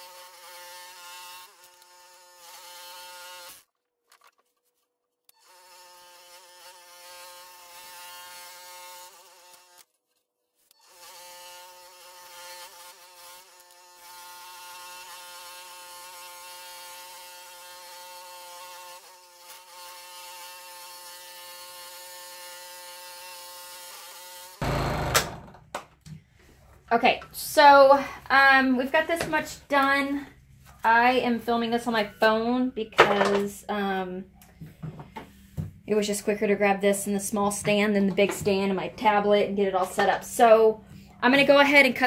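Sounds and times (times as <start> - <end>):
scroll saw buzzing: 0.0 - 3.7, 5.3 - 25.6.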